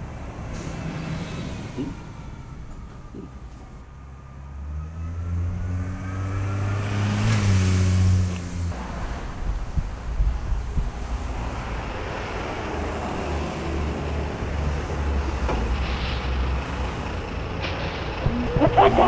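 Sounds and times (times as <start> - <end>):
lorry engine rumble: 8.4 - 19.0.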